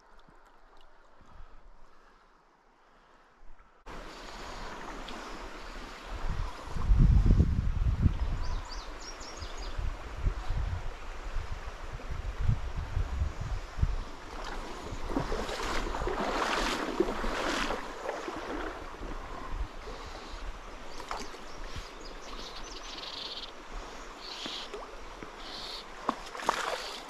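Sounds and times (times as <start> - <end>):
water sloshing from wading: 14.2 - 20.0, 24.4 - 27.0.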